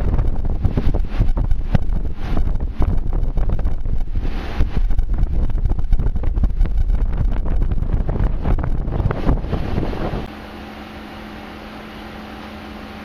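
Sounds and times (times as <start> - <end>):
wind buffeting microphone: 0.0 - 10.3
steady low hum: 0.0 - 13.0.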